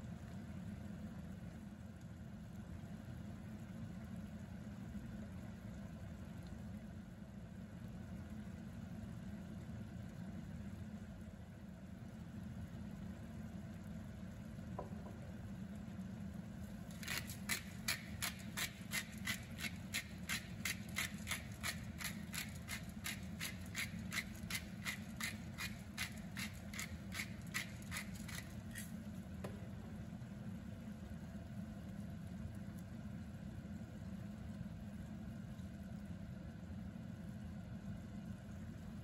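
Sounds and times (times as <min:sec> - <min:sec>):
steady low hum: 0:00.0 - 0:39.0
spice grinder clicking: 0:17.0 - 0:28.9.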